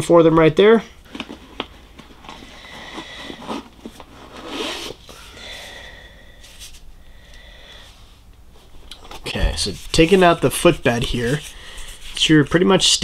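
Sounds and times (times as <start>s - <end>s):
insole scraping inside boot: 2.8s - 5.2s.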